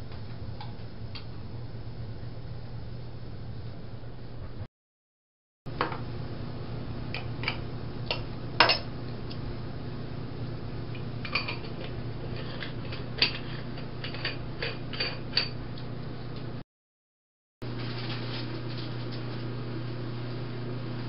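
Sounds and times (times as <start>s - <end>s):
steady low hum: 0.0s - 4.7s, 5.7s - 16.6s.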